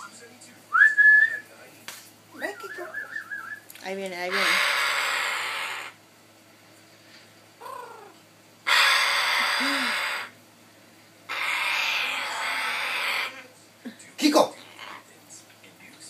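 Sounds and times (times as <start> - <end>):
parrot hissing: 4.3 - 6.0, 7.6 - 10.4, 11.3 - 13.5.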